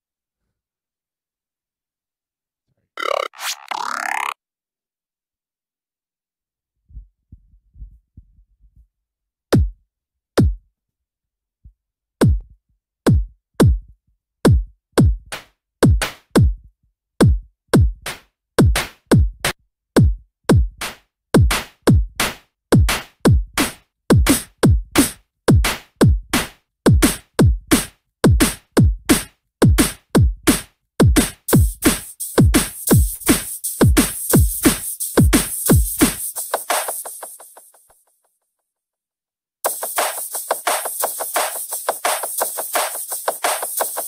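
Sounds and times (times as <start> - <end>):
beatboxed kick drums: 9.6 - 9.8, 12.2 - 12.5, 13.1 - 13.9, 14.5 - 16.6, 17.2 - 19.4, 20.0 - 22.2, 22.8 - 37.8, 39.7 - 44.0.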